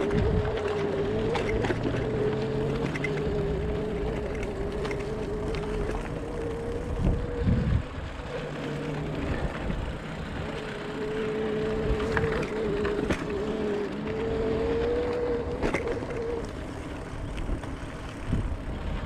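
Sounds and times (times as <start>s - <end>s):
electric bike motor whining: 0.0s - 19.0s
low bumps: 0.0s - 19.0s
tyres rumbling on dirt trail: 0.0s - 19.0s
wind on microphone: 0.0s - 19.0s.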